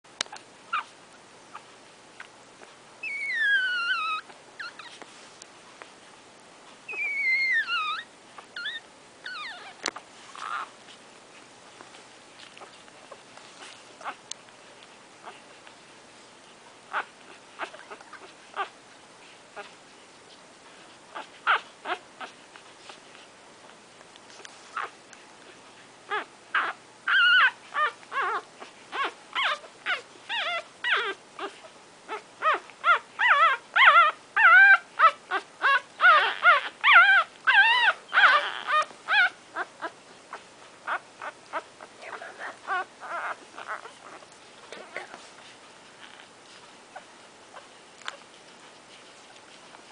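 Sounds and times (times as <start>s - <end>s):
puppies whimpering and squeaking: 0.7s - 2.3s, 3.0s - 5.2s, 6.8s - 15.8s, 16.9s - 23.3s, 24.3s - 49.9s.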